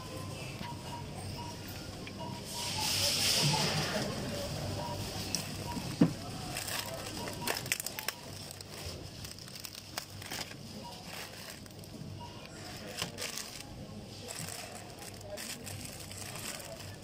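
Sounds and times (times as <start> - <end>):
plastic packaging crinkling: 6.4 - 11.9, 12.7 - 17.0.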